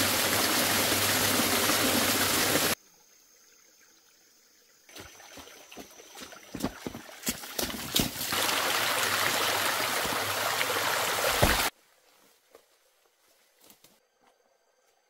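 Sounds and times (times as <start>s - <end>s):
stream running over stones: 0.0s - 2.8s, 4.9s - 11.7s
faint rustles of foliage: 11.7s - 15.0s.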